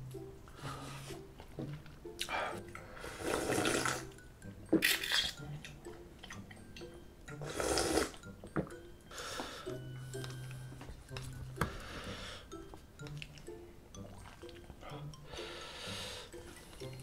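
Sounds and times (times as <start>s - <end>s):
person slurping noodles: 3.0s - 4.1s, 7.4s - 8.2s.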